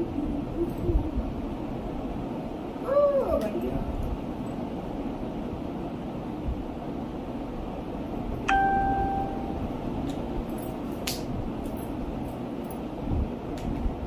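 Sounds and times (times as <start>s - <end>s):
steady background noise: 0.0s - 14.0s
bright chime-like ring: 8.5s - 9.7s.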